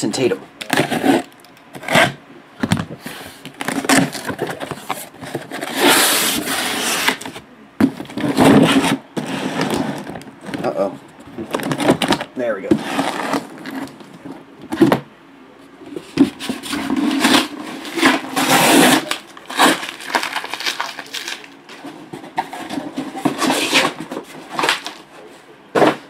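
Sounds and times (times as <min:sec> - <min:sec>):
plastic wrap crinkling: 0:16.6 - 0:21.9
boxes knocking when set down: 0:25.7 - 0:26.0.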